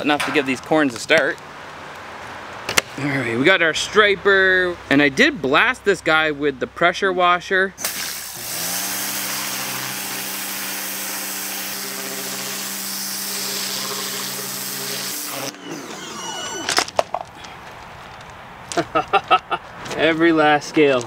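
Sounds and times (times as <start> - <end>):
water jet hissing: 7.8 - 16.6
pump motor humming: 7.8 - 16.9.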